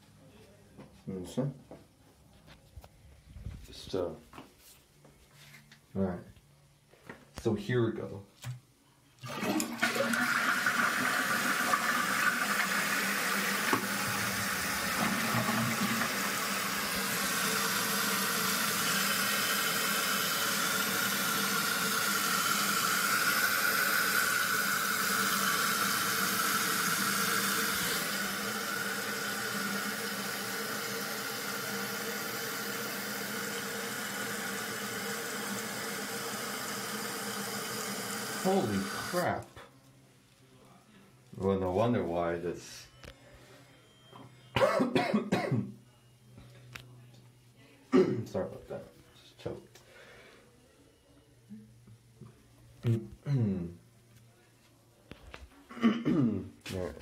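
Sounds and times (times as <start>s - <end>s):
water rushing as tank refills: 9.2s - 39.2s
toilet flushing: 9.2s - 39.3s.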